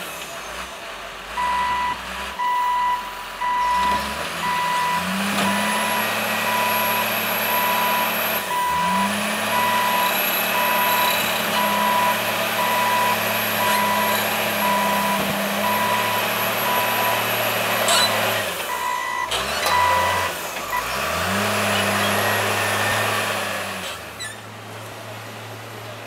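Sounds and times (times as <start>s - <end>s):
diesel engine running: 0.0s - 26.0s
back-up alarm beeping: 1.4s - 17.3s, 18.7s - 20.9s.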